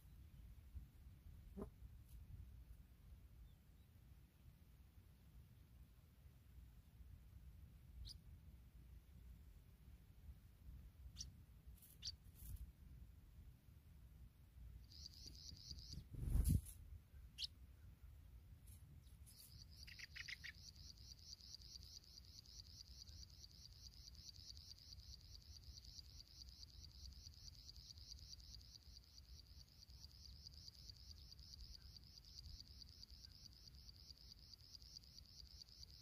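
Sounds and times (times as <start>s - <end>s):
soft chirps: 7.9s - 8.3s, 11.1s - 12.6s, 14.8s - 36.0s
cricket trilling: 14.8s - 16.0s, 19.3s - 36.0s.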